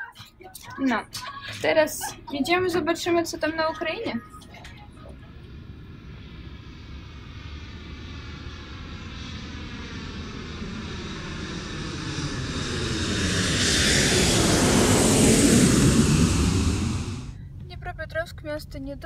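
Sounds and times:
jet engines roaring from cabin: 1.5 - 17.6.

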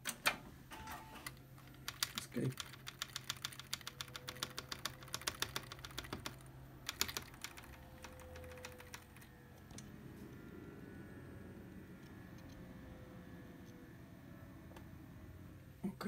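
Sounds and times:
keyboard key tapping: 1.8 - 9.2.

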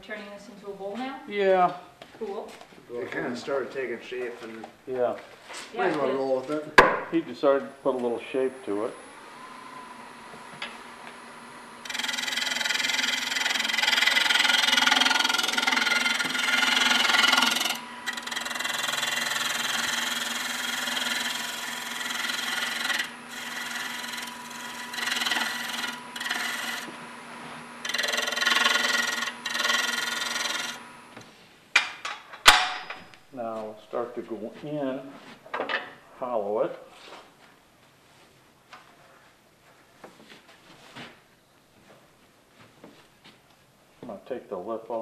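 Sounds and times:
wood lathe humming: 8.0 - 31.3
gouge shearing wood shavings: 11.7 - 31.1.

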